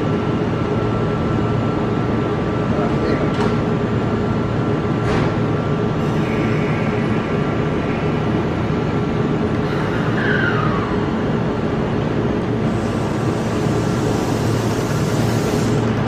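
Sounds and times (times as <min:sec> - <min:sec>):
electric train humming: 0:00.0 - 0:16.0
train squeal: 0:06.0 - 0:08.4, 0:09.6 - 0:11.2
train hiss: 0:12.6 - 0:16.0.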